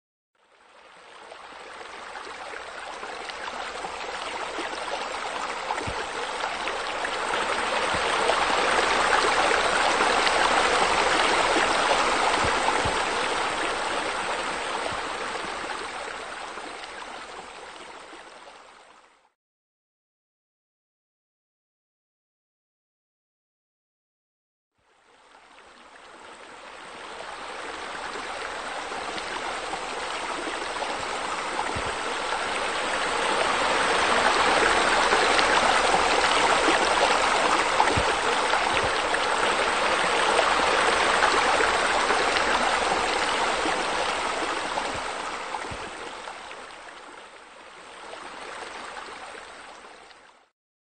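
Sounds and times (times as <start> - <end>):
running water splashing: 28.0 - 46.8.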